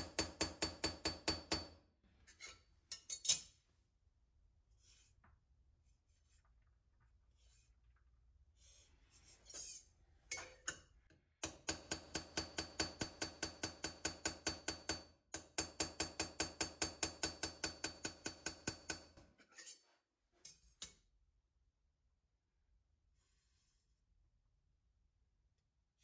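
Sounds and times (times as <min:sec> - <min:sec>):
blade knocking on anvil: 0:11.4 - 0:19.1.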